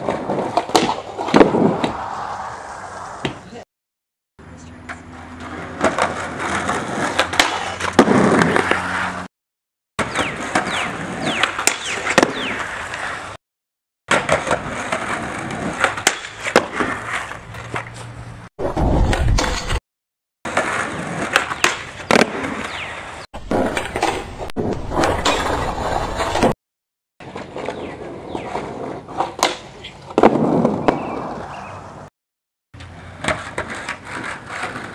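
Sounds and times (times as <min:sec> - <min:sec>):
skateboard clacks: 0:00.0 - 0:02.0, 0:14.1 - 0:18.1, 0:32.8 - 0:34.9
skateboard rolling on concrete: 0:00.0 - 0:03.6, 0:04.8 - 0:09.3, 0:10.0 - 0:13.4, 0:14.1 - 0:19.8, 0:20.5 - 0:26.6, 0:27.2 - 0:32.1, 0:32.8 - 0:34.9
skateboard grinding metal bar: 0:33.0 - 0:34.9.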